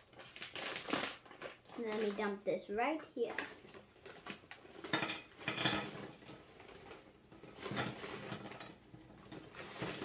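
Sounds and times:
biscuits clattering onto plate: 0:04.1 - 0:06.5.

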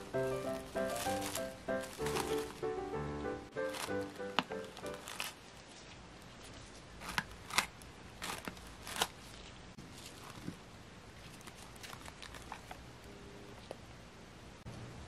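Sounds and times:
cling film crinkling: 0:00.0 - 0:02.8, 0:03.6 - 0:10.6, 0:11.2 - 0:12.8.

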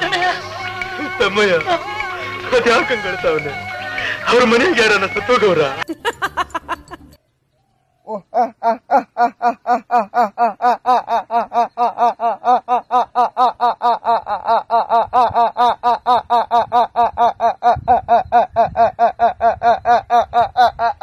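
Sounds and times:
man's forced staccato laugh: 0:00.0 - 0:03.0, 0:08.4 - 0:21.0.

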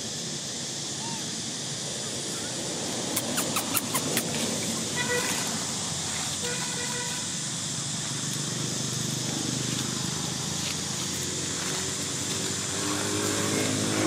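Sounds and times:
road traffic noise: 0:00.0 - 0:14.0
vehicle passing: 0:07.4 - 0:14.0.

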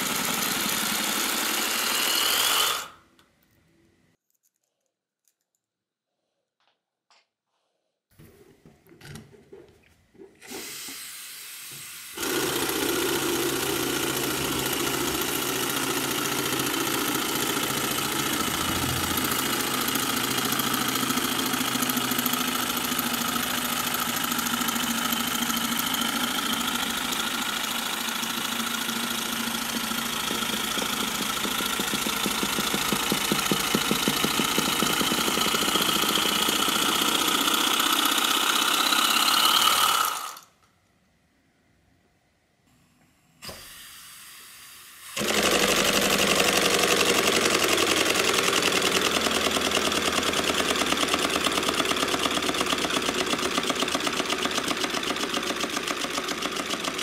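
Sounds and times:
air motor chugging: 0:00.0 - 0:03.0, 0:10.4 - 0:40.5, 0:45.2 - 0:57.0
air hissing: 0:10.4 - 0:12.2.

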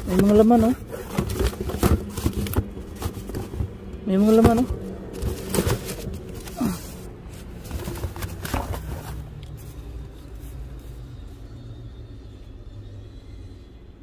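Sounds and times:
cardboard box knocks and rustles: 0:00.0 - 0:06.6, 0:07.6 - 0:09.2.

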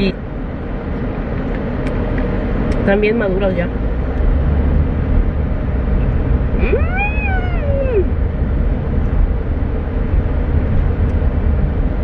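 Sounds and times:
car interior rumble: 0:00.0 - 0:12.0
pet whining: 0:06.6 - 0:08.2.

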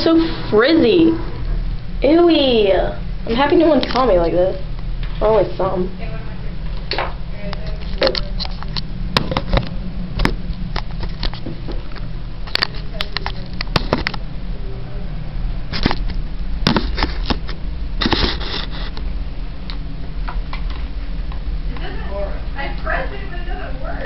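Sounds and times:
steady low hum: 0:00.0 - 0:24.0.

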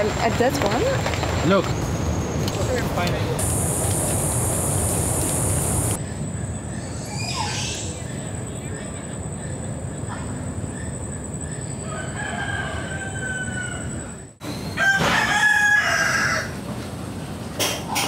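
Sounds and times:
rooster crowing: 0:11.8 - 0:16.6.

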